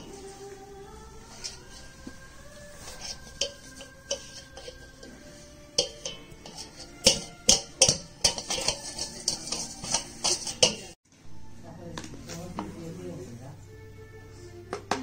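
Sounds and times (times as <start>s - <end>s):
steel bowl knocking and clattering: 3.0s - 11.0s.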